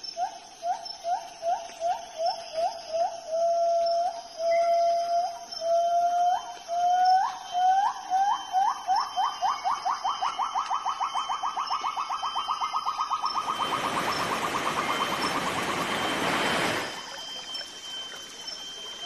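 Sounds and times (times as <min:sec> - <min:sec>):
river rapid rushing: 0:13.4 - 0:17.1.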